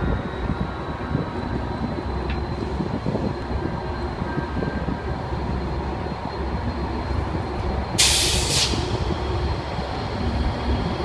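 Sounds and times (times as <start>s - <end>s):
diesel locomotive engine rumble: 0.0s - 11.0s.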